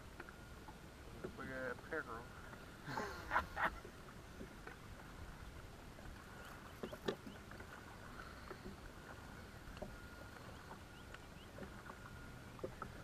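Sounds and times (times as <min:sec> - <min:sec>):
faint thin whine: 0:04.1 - 0:13.0.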